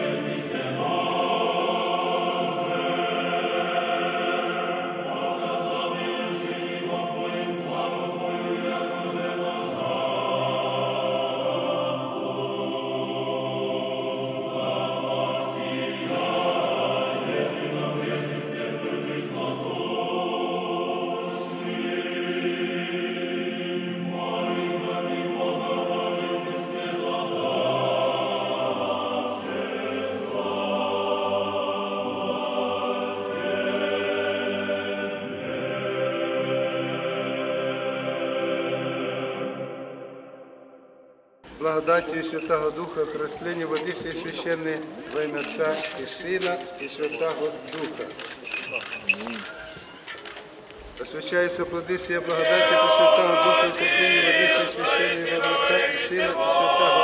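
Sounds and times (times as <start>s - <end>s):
church choir chanting: 0.0s - 57.0s.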